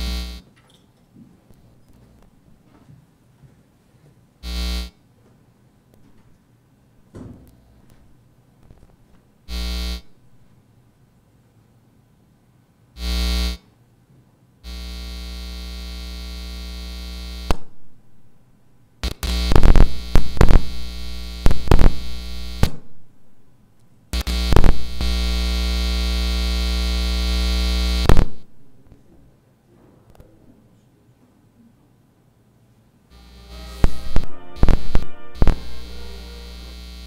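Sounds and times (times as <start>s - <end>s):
sharp crackles and pops: 0.0s - 0.4s, 8.6s - 10.1s, 14.6s - 17.8s, 19.0s - 22.9s, 23.8s - 28.5s, 33.2s - 37.0s
electrical buzz from sound system: 0.0s - 0.6s, 4.4s - 5.3s, 5.9s - 11.2s, 12.8s - 13.8s, 14.6s - 29.0s, 33.1s - 37.0s.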